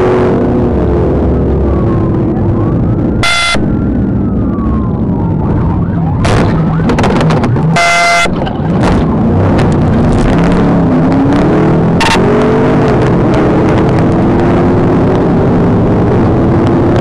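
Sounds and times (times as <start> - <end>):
car engine: 0.0 - 17.0
police siren wailing: 0.6 - 10.0
short horn-like blasts: 7.8 - 8.3.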